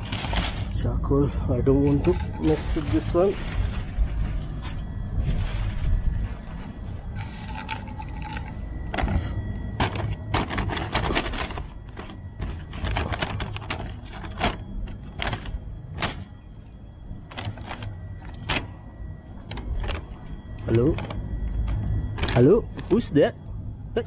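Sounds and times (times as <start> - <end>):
plastic bags crinkling: 0.0 - 0.9, 1.9 - 6.2, 9.8 - 16.4, 17.2 - 18.8.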